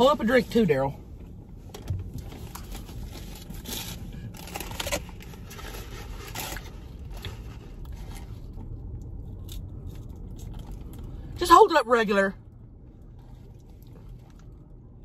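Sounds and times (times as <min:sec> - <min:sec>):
low hum inside car: 0:00.0 - 0:15.0
food wrappers crinkling: 0:02.4 - 0:08.5.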